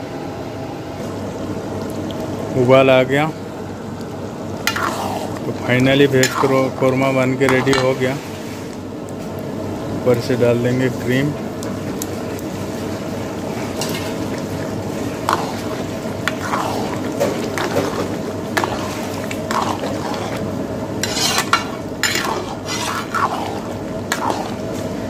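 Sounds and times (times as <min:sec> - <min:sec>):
steady hum: 0:00.0 - 0:25.0
metal ladle scraping pan: 0:04.7 - 0:05.4, 0:06.0 - 0:06.7, 0:13.8 - 0:14.2, 0:14.9 - 0:24.8.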